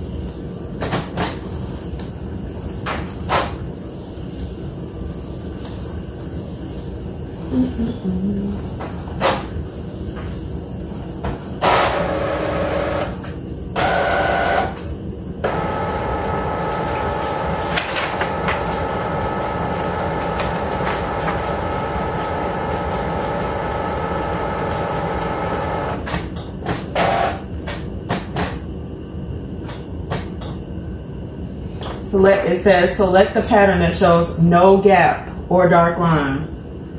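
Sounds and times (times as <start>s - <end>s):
printer motors whining: 11.6s - 13.2s, 15.5s - 26.0s.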